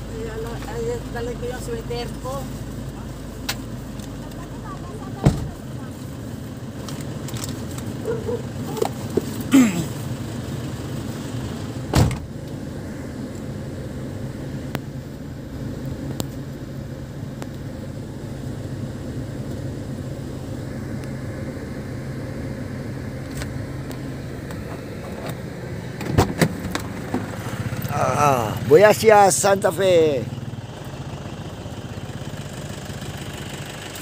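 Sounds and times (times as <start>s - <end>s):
engine running with low hum: 0.0s - 34.0s
thump: 5.2s - 5.6s, 11.9s - 12.3s.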